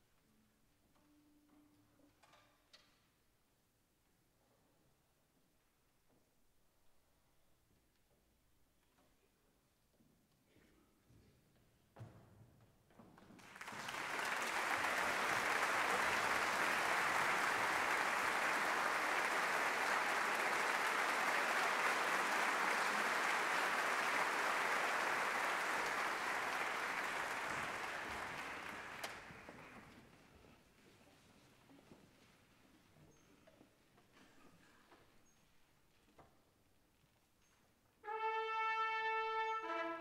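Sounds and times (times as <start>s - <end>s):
audience applauding: 13.4s - 30.0s.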